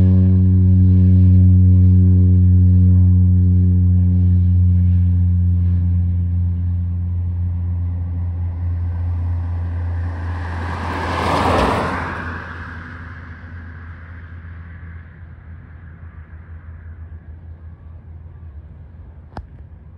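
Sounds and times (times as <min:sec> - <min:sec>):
turboprop propeller drone: 0:00.0 - 0:19.9.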